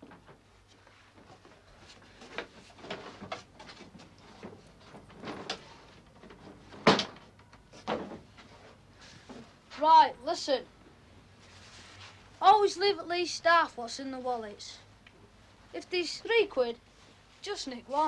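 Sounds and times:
cloth rustling: 0:11.3 - 0:12.5
plastic coat rustling: 0:11.4 - 0:12.4.

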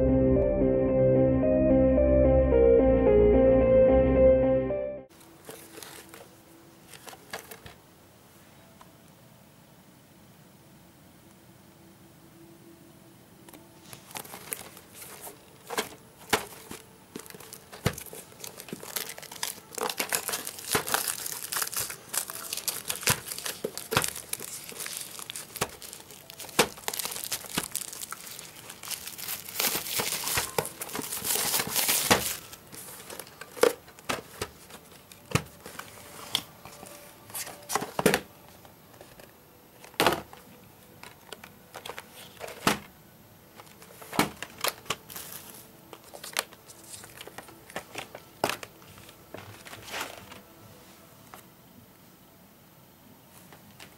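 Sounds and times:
plastic wrap crinkling: 0:05.2 - 0:07.8, 0:13.8 - 0:37.8, 0:43.5 - 0:50.4.

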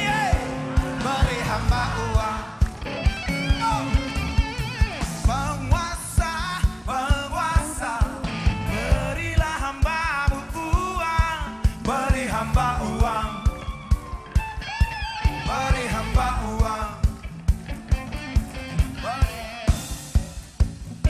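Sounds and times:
person singing: 0:00.0 - 0:14.1, 0:15.2 - 0:17.2
drums on a steady beat: 0:00.0 - 0:21.0
electric guitars: 0:00.0 - 0:21.0.

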